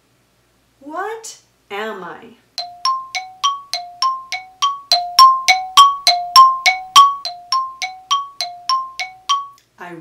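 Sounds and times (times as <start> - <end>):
two-note chime: 2.6 - 9.6.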